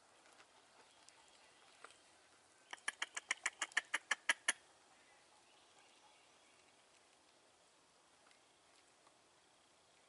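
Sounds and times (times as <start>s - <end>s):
short sharp animal calls: 2.7s - 4.6s.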